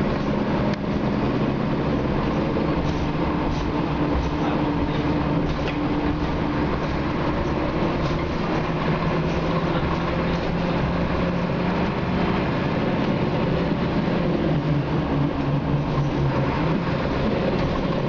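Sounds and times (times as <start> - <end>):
bus diesel engine running: 0.0 - 18.0
road and body noise: 0.0 - 18.0.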